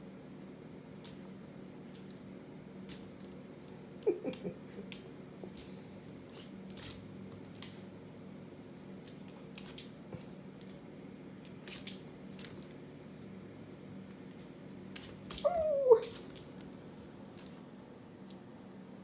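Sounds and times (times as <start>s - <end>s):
puppy scuffle: 5.4s - 7.9s, 14.9s - 17.7s
dog claws clicking on wooden floor: 9.0s - 10.0s.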